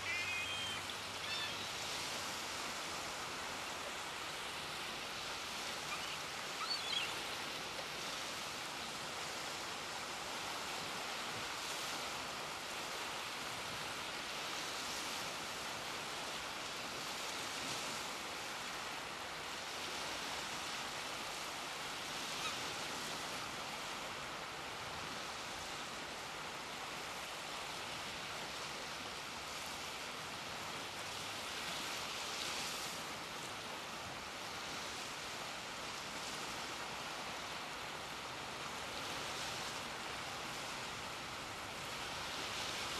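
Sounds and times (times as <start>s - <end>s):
short high bird call: 0.0s - 1.7s
small waves washing ashore: 0.0s - 42.9s.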